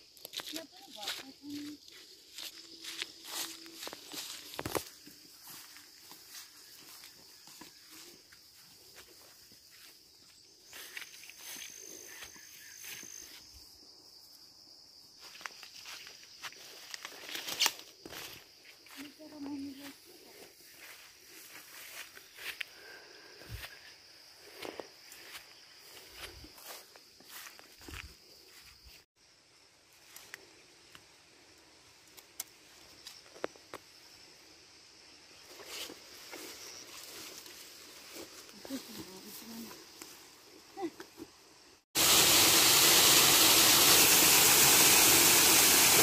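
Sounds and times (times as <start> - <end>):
footsteps rustling through tall grass: 0.0 - 13.6, 15.2 - 29.1, 35.4 - 40.4
high insect drone: 0.0 - 46.0.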